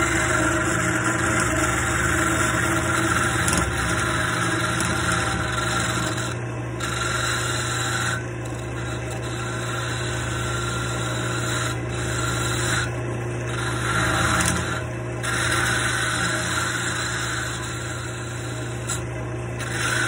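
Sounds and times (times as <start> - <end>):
wood lathe humming: 0.0 - 20.0
gouge scraping wood shavings: 13.6 - 19.0, 19.6 - 20.0.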